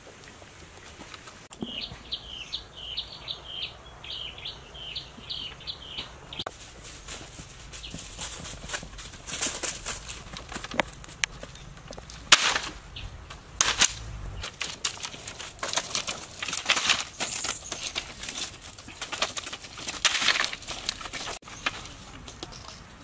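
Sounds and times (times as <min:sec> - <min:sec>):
bamboo poles knocking and rustling: 0:06.0 - 0:23.0.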